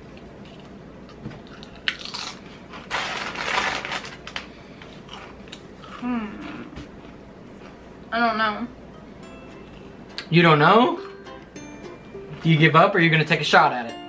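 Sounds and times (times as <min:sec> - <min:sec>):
tortilla chip crunching: 0:01.4 - 0:07.8.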